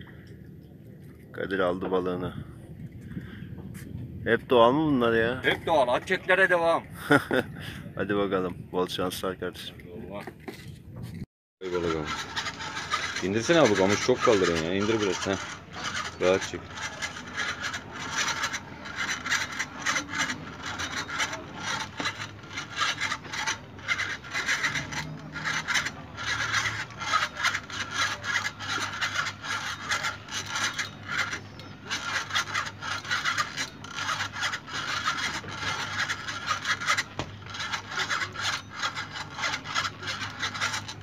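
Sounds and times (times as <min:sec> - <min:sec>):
spinning reel whirring: 0:11.6 - 0:41.0.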